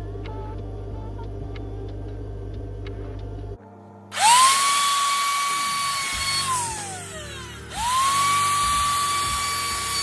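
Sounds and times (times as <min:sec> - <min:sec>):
router whining and spinning down: 0:04.1 - 0:10.0.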